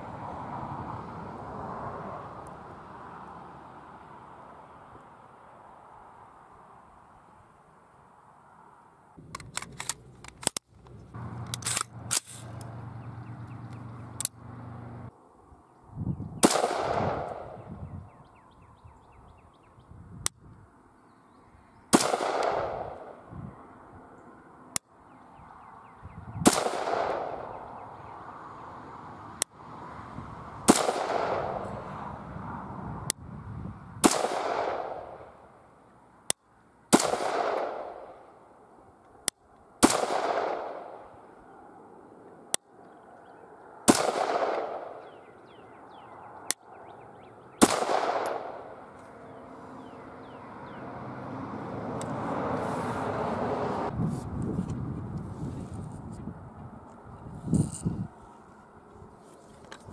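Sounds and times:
rifle shots with echo: 16.4 - 17.6, 21.9 - 23.2, 26.4 - 27.6, 30.7 - 31.7, 34.0 - 35.4, 36.9 - 38.3, 39.8 - 41.1, 43.9 - 45.2, 47.6 - 48.8.

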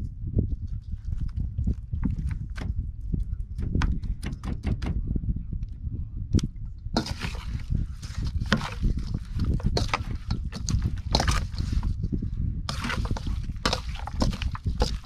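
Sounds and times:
low rumble: 4.9 - 15.0
water splashing and sloshing: 7.0 - 12.0, 12.7 - 15.0.

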